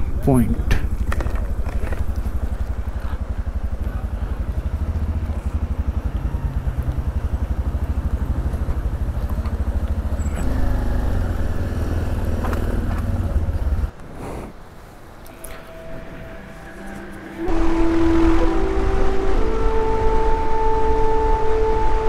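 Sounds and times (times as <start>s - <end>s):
motorcycle engine running: 0.0s - 13.9s.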